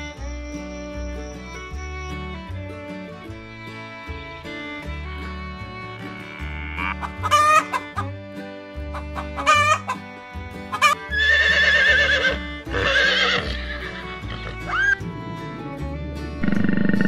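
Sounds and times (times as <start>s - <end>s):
background music: 0.0s - 17.0s
chicken calling: 6.0s - 8.1s, 8.9s - 10.0s, 10.7s - 15.0s.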